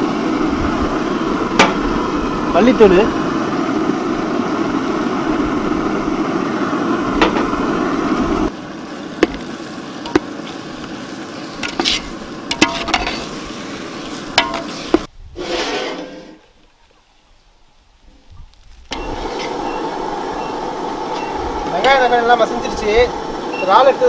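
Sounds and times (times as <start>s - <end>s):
food sizzling in metal pan: 9.1s - 15.9s, 18.9s - 24.0s.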